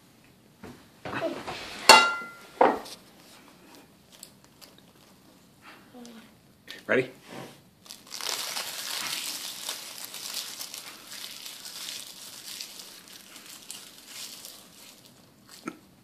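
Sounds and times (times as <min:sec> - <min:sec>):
child crunching dried seaweed: 0:03.6 - 0:05.3, 0:07.8 - 0:16.0.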